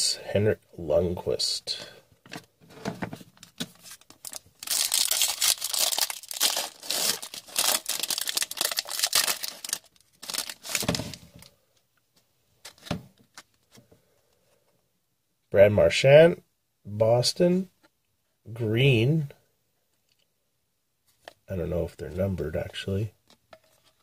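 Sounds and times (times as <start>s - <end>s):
soft handling of cards: 1.7s - 14.8s, 21.0s - 21.5s
foil wrapper tearing and crinkling: 4.2s - 11.2s.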